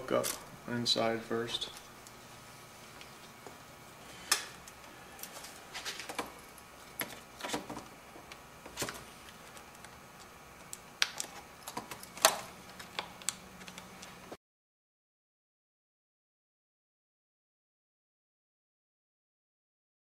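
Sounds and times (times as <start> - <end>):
plastic parts clicking and snapping: 8.7 - 13.9.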